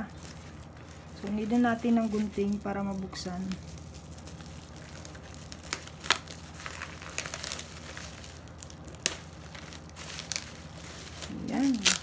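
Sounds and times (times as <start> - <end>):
bubble wrap crinkling: 0.0 - 12.0
scissors cutting plastic: 4.6 - 12.0.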